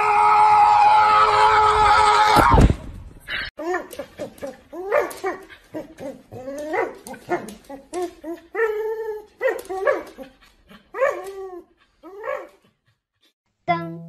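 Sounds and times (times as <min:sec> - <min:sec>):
dog whining and yowling: 0:03.6 - 0:12.7.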